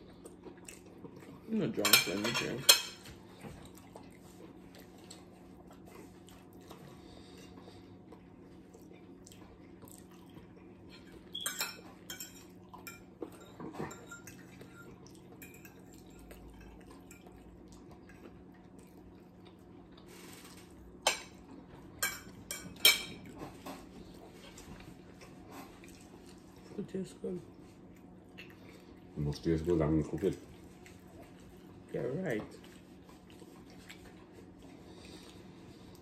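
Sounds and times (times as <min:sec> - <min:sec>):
low room hum: 0:00.0 - 0:36.0
forks clinking on plates: 0:01.8 - 0:03.1, 0:10.9 - 0:17.3, 0:22.0 - 0:23.2.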